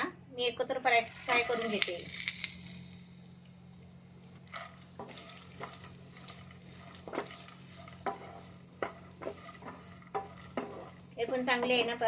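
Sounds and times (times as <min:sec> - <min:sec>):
faint sizzle: 0:00.0 - 0:12.0
spatula scraping a pan: 0:04.5 - 0:12.0.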